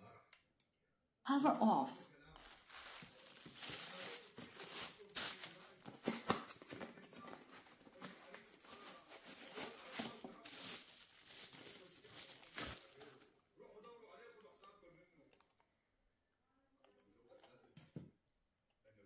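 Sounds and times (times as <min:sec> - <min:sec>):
packaging crinkling: 0:02.4 - 0:13.2.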